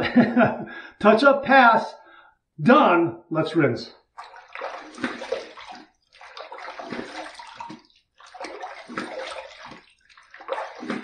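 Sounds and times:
water splashing on face: 4.1s - 11.0s.

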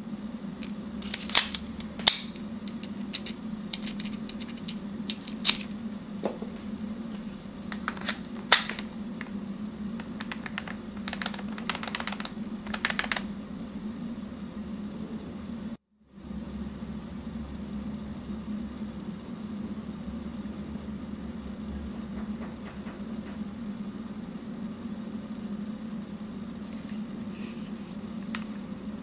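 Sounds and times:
steady low hum: 0.0s - 29.0s
plastic clicks and clacks: 10.0s - 13.2s.

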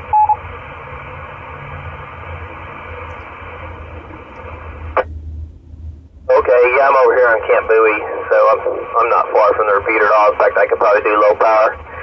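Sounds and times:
short radio beep: 0.0s - 0.4s
radio hiss: 0.0s - 5.1s, 6.3s - 12.0s
low steady rumble: 0.0s - 12.0s.

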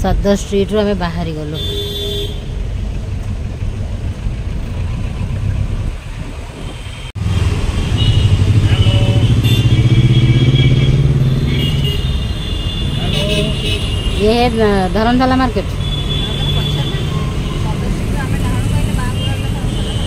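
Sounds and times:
city traffic rumble: 0.0s - 20.0s
engine accelerating: 2.6s - 11.8s.

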